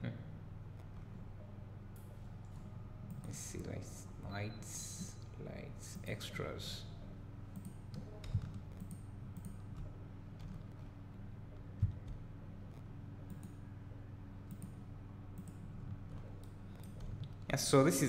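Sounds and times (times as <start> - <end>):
low electrical hum: 0.0 - 18.0
computer mouse clicks: 7.6 - 10.9, 11.8 - 13.6, 14.4 - 14.8, 15.4 - 17.4.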